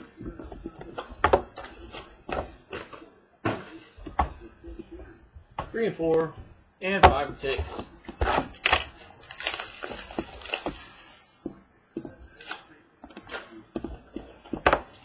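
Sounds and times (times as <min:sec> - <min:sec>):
plastic wrap crinkling: 0:07.4 - 0:11.4.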